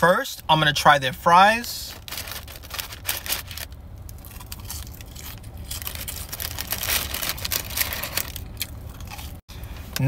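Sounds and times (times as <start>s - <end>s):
steady low hum: 0.0s - 10.0s
chewing crunchy fries: 1.9s - 9.4s.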